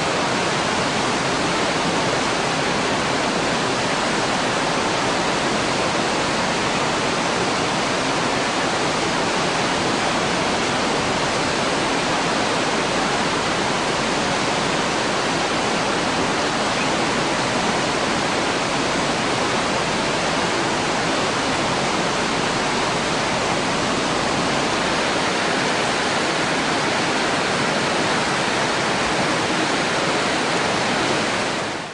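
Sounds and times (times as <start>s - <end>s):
flooded river rushing: 0.0s - 31.9s.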